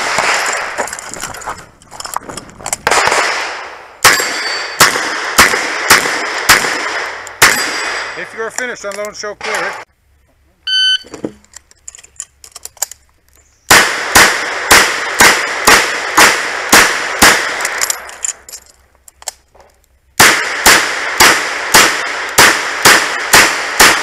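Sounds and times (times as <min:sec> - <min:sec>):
shot timer beep: 0:10.7 - 0:11.1.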